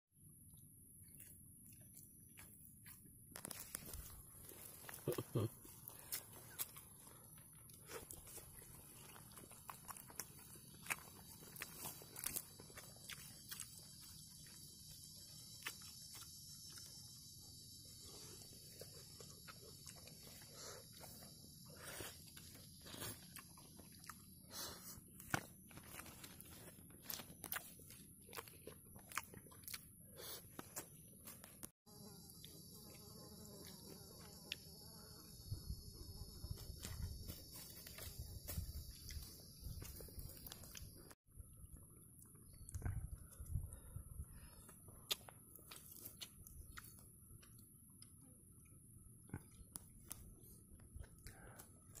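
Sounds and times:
high insect drone: 10.4s - 24.9s, 31.9s - 41.2s.

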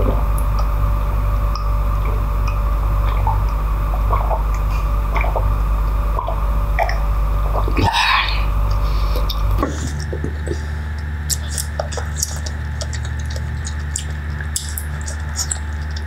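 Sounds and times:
water drips: 0.0s - 7.8s, 8.6s - 16.0s
person gulping water: 0.0s - 16.0s
steady low hum: 0.0s - 16.0s
breathy burst: 7.5s - 11.7s.

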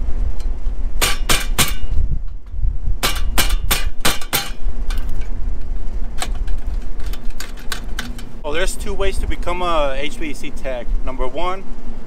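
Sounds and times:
steady low rumble: 0.0s - 12.0s
sharp knocks: 1.0s - 5.1s.

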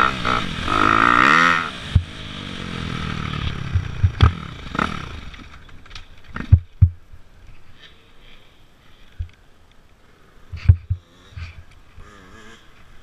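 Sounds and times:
dirt bike engine coasting: 0.0s - 8.0s, 10.5s - 13.0s
bike knocking over rough ground: 3.7s - 7.0s.

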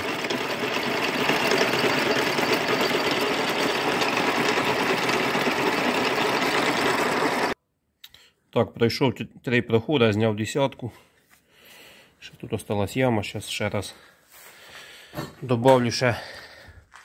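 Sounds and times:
milling machine cutting metal: 0.0s - 7.6s.

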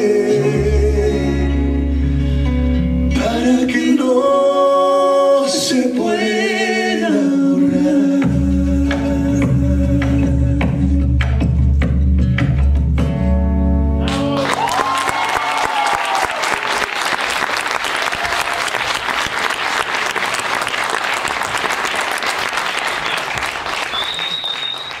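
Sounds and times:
audience applauding: 14.0s - 25.0s
voices cheering: 14.1s - 25.0s.

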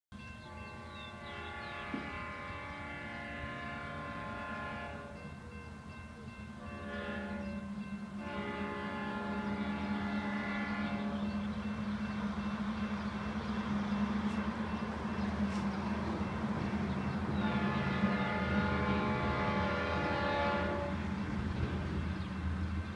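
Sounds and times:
locomotive engine drone: 0.2s - 22.9s
locomotive horn blasts: 0.4s - 5.4s, 6.6s - 11.5s, 17.3s - 21.1s.

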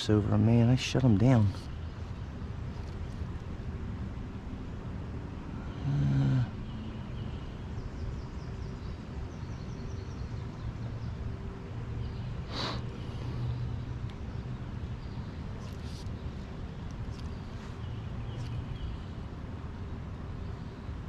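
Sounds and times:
low creek rumble: 0.0s - 21.0s.

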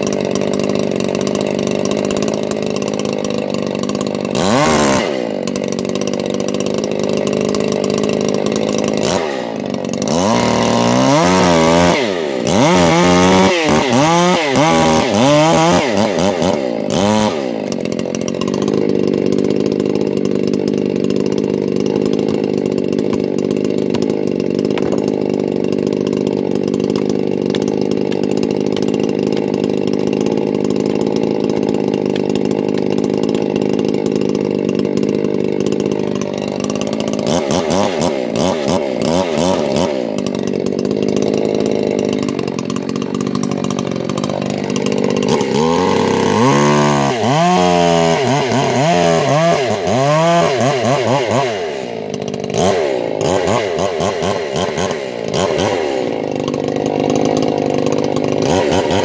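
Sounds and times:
chainsaw idling and revving: 0.0s - 59.0s.

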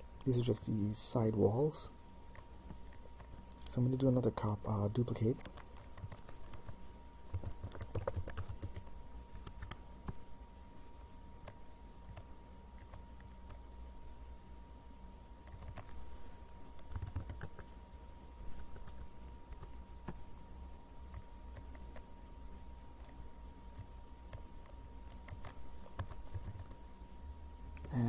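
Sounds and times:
faint electrical tone: 0.0s - 28.0s
keyboard keystrokes: 5.4s - 9.8s, 15.4s - 15.9s, 16.8s - 17.7s.

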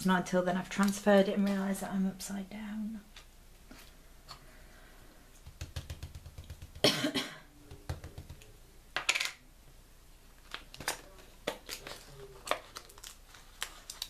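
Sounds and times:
dauber tapping paint on plastic: 5.4s - 6.9s, 7.6s - 8.6s.

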